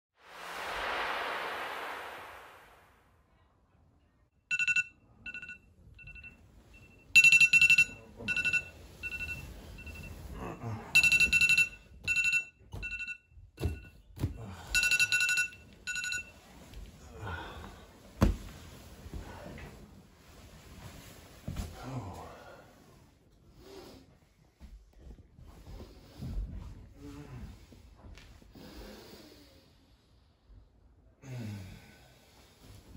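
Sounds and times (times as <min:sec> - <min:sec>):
smartphone alarm beeping: 0:04.5 - 0:10.1, 0:11.0 - 0:13.9, 0:14.8 - 0:16.3
bedding rustling: 0:16.3 - 0:21.8.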